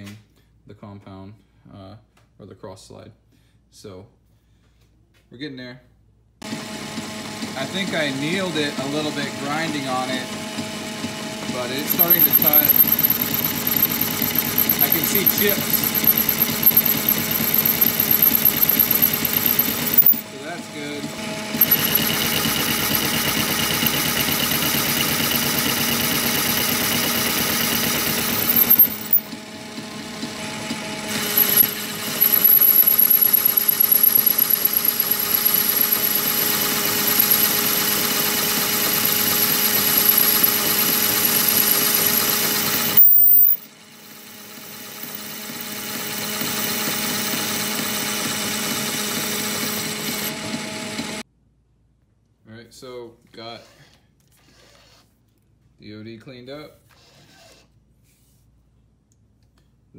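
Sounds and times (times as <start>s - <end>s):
metal lathe cutting: 6.5s - 51.2s
thin high whine: 11.7s - 20.2s.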